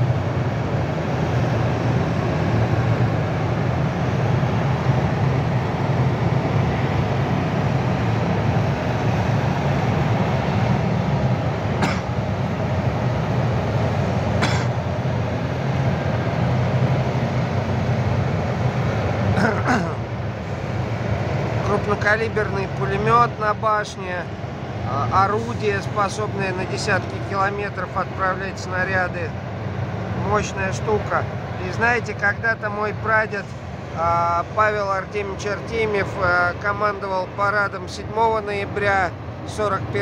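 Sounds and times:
deep engine rumble: 0.0 - 40.0.

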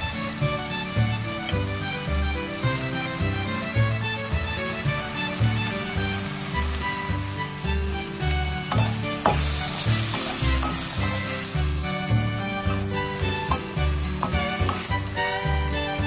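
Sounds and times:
background music with steady beat: 0.0 - 16.0
vegetables sizzling in a frying pan: 0.0 - 16.0
spatula scraping and tapping pan: 4.3 - 16.0.

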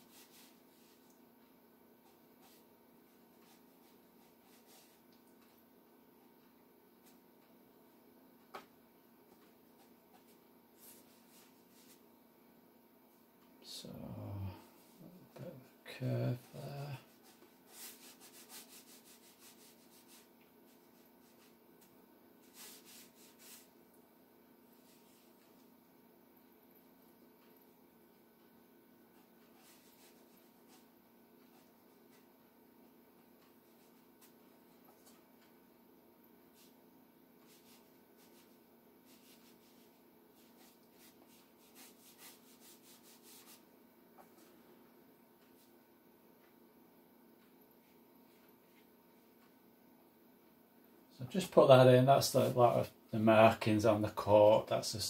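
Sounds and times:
brush strokes on paper: 0.0 - 1.2, 2.0 - 5.6, 9.8 - 12.0, 16.4 - 21.6, 22.4 - 23.8, 24.8 - 25.6, 29.2 - 30.9, 37.4 - 44.5
low steady hum: 0.0 - 55.0.

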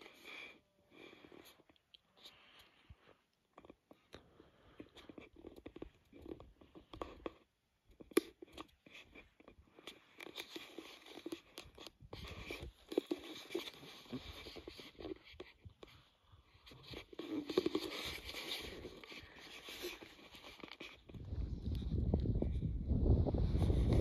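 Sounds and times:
brush scraping against clothing: 8.2 - 21.2.

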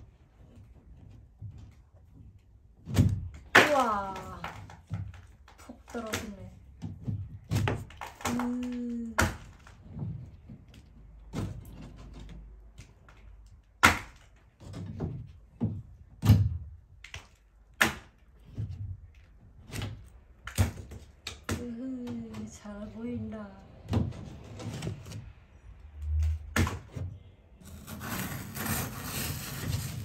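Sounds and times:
ceiling board cracking and snapping: 0.4 - 22.6.

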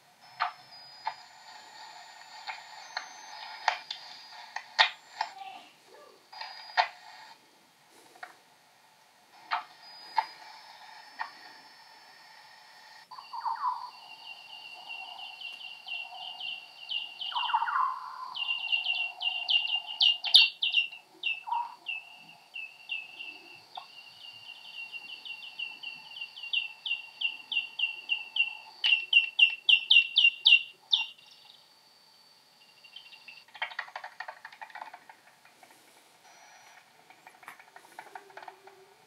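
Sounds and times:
bat echolocation chirps: 9.4 - 38.6.

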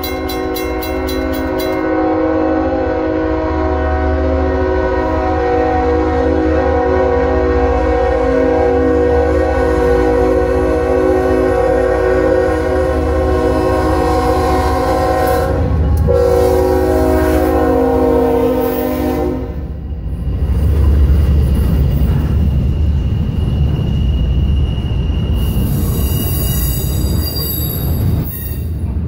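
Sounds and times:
wheels clattering on rail: 0.0 - 2.1, 20.2 - 29.0
train rumbling by: 0.0 - 29.0
locomotive air horn blast: 1.8 - 19.7.

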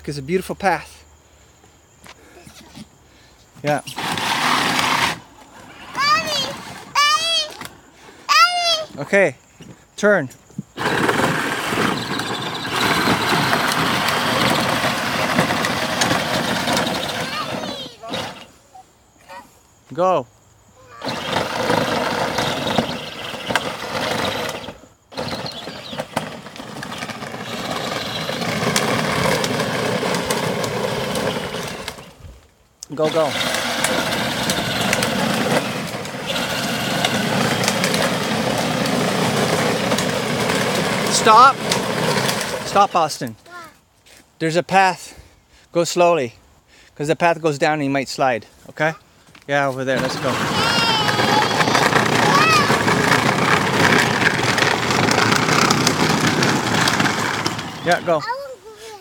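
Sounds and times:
plastic wheels rolling on pavement: 0.1 - 20.1, 20.8 - 44.8, 47.2 - 59.0
toy ride-on vehicle rumbling: 3.6 - 9.0, 10.7 - 18.8, 20.8 - 43.7, 49.8 - 59.0
electric motors whirring: 3.9 - 5.3, 10.8 - 18.6, 20.9 - 32.2, 32.9 - 42.9, 50.0 - 58.2.

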